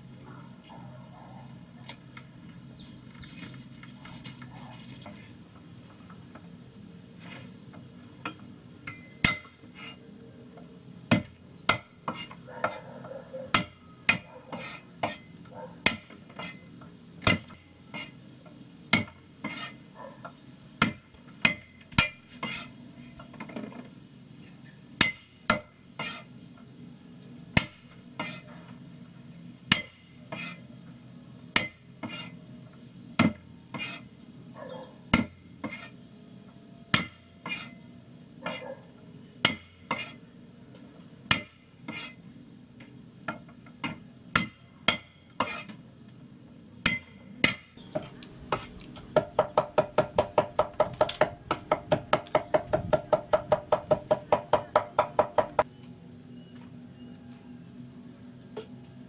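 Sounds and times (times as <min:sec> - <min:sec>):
utensils scraping: 0:08.9 - 0:10.2, 0:12.0 - 0:13.0, 0:14.5 - 0:15.4, 0:16.2 - 0:16.7, 0:17.5 - 0:18.2, 0:19.4 - 0:19.9, 0:22.0 - 0:23.7, 0:26.0 - 0:26.4, 0:28.2 - 0:28.5, 0:30.3 - 0:30.7, 0:32.0 - 0:32.4, 0:33.7 - 0:34.1, 0:35.6 - 0:36.0, 0:37.4 - 0:37.8, 0:41.8 - 0:42.2, 0:45.4 - 0:45.8.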